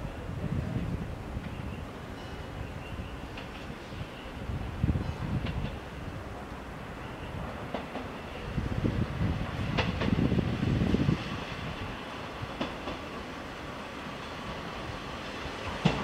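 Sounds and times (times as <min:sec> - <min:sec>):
diesel railcar rumble: 0:00.0 - 0:16.0
wheels clicking over rail joints: 0:15.6 - 0:16.0.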